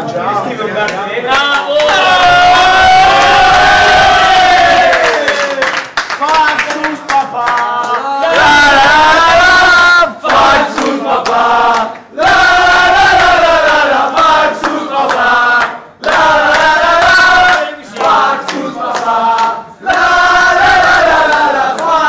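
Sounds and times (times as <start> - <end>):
hand clapping: 4.9 - 8.1, 10.2 - 12.1, 14.2 - 20.1, 21.2 - 22.0
crowd chanting: 7.1 - 22.0.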